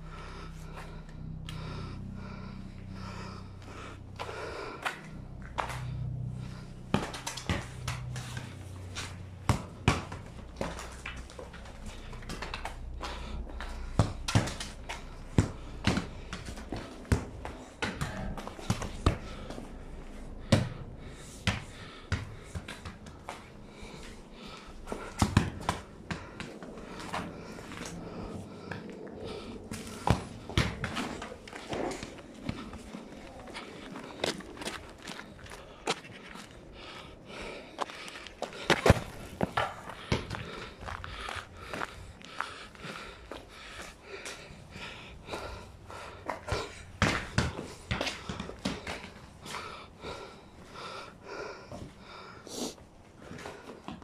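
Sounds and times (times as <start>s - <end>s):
footsteps: 21.4s - 52.1s
ball thudding on pavement: 38.7s - 40.5s, 46.3s - 49.2s.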